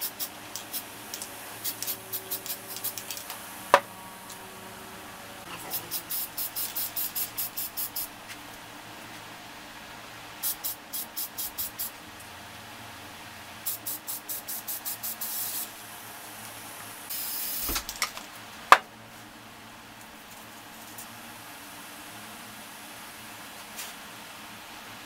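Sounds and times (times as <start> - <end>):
spray paint can hissing: 0.0 - 3.4, 5.6 - 8.1, 10.4 - 12.0, 13.6 - 15.8, 17.1 - 18.0.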